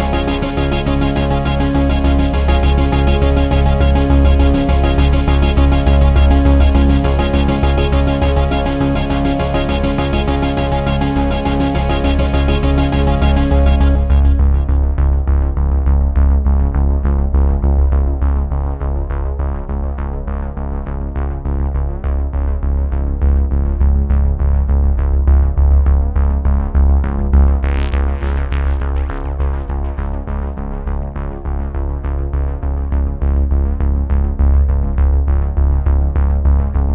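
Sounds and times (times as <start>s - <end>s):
electronic synthesizer music: 0.0s - 15.3s.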